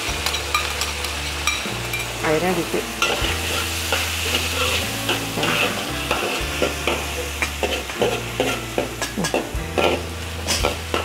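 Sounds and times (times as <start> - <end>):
sauce sizzling: 0.0 - 11.0
metal spatula scraping a wok: 2.9 - 11.0.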